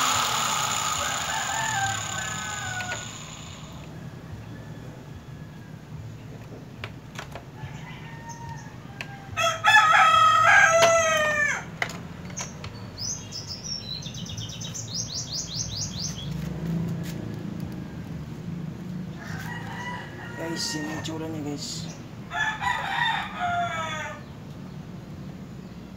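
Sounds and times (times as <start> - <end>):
rooster crowing: 0.1 - 5.7, 7.6 - 11.7, 19.2 - 21.4, 22.3 - 24.3.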